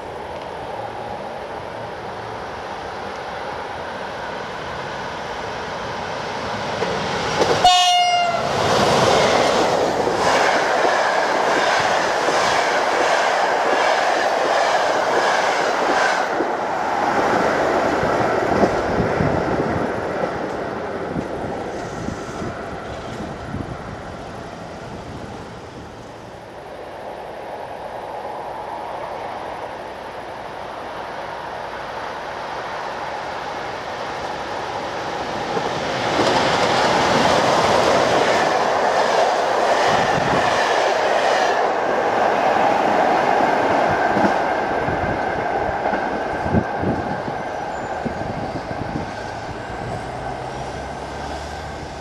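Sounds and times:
train coaches rushing past: 0.0 - 52.0
train horn blast: 7.6 - 8.5.

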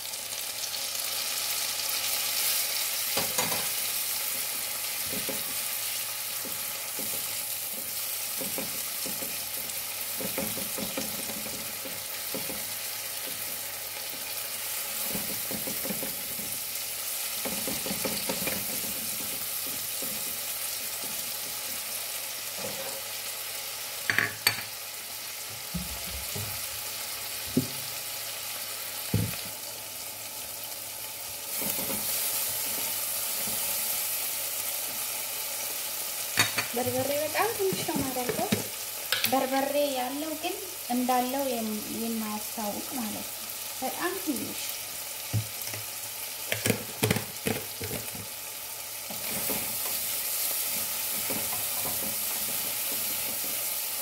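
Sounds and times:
vegetables sizzling in a frying pan: 0.0 - 54.0
spatula scraping a pan: 3.2 - 23.3, 31.5 - 34.0, 49.1 - 53.7.

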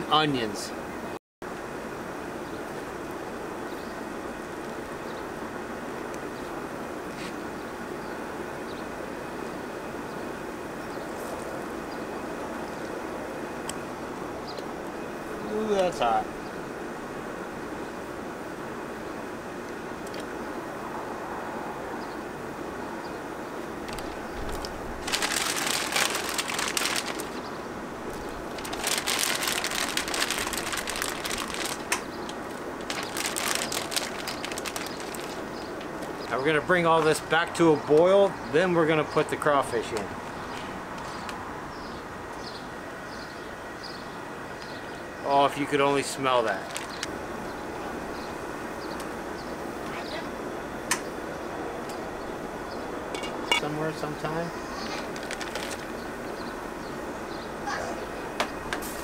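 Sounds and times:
plastic bag crinkling: 23.8 - 35.8, 46.5 - 47.1, 54.8 - 56.1
propane burner rushing: 58.7 - 59.0.

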